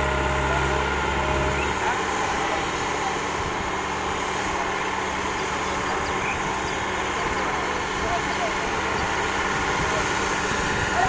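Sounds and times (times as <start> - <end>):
earthmoving machine engines: 0.0 - 11.0.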